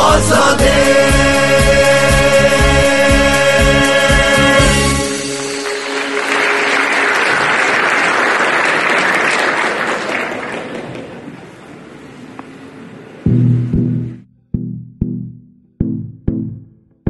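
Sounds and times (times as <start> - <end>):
audience applauding: 4.6 - 11.8.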